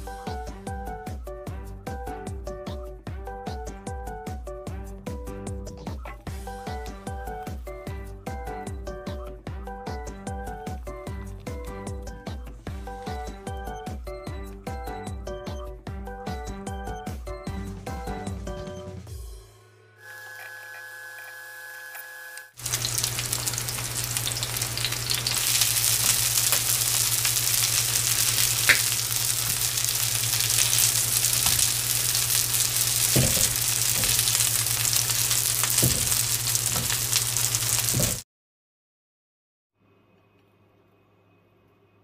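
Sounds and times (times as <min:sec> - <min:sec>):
pancakes sizzling in hot oil: 0:22.6 - 0:38.2.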